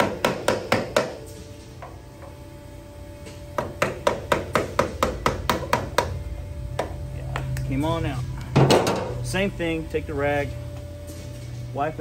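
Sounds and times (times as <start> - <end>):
hammer tapping on metal: 0.0 - 1.2, 3.6 - 7.0.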